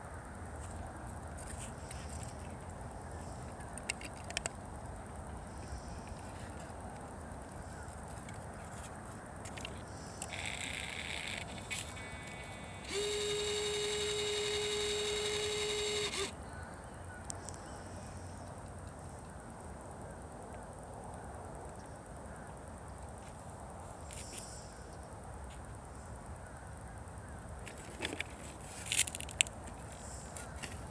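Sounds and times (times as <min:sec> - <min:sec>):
small electric motor buzzing: 0:10.2 - 0:16.4.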